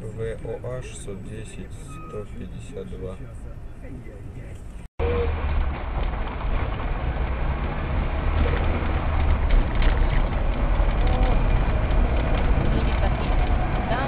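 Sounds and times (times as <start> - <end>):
car engine rumble: 0.0 - 14.0
road noise: 0.0 - 14.0.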